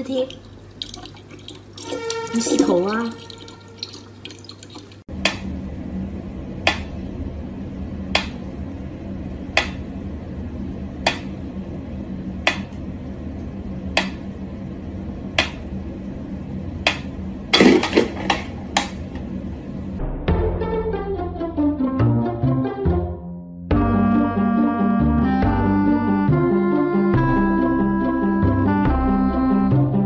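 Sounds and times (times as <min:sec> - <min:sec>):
clattering noise: 0:17.5 - 0:19.3.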